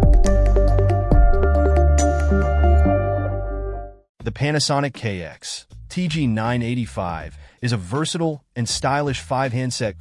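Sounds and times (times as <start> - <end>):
electronic jingle with synth and beat: 0.0 - 4.0.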